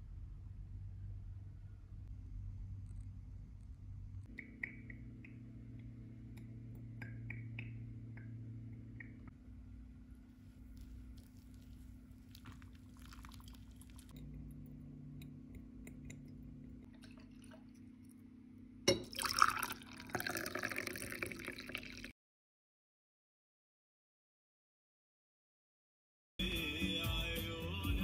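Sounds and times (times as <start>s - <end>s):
low steady hum: 0.0s - 22.0s
hot water trickling onto coffee: 10.4s - 17.9s, 18.9s - 22.1s
faint dripping: 10.4s - 18.2s
coffee poured into ceramic cup: 10.6s - 14.5s, 15.9s - 17.9s, 18.9s - 22.1s.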